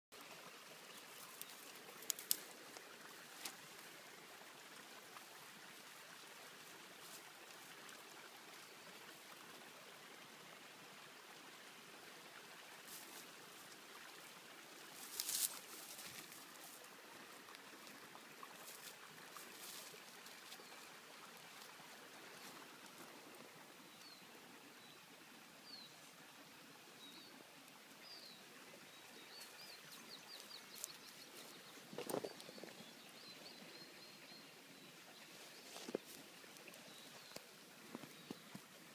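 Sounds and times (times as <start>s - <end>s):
dry vegetation rustling: 1.1s - 3.8s, 14.9s - 16.9s, 18.6s - 20.8s, 29.4s - 32.6s, 35.3s - 38.2s.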